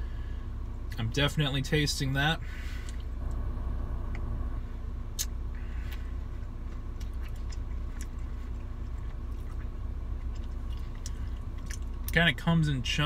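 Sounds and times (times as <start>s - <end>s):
low hum inside car: 0.0s - 13.0s
ice cream being chewed: 5.2s - 12.2s.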